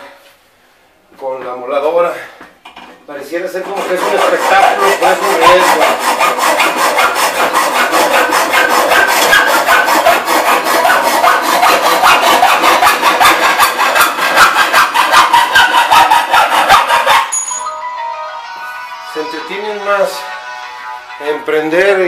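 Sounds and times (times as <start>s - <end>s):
hacksaw cutting steel: 3.5s - 17.5s.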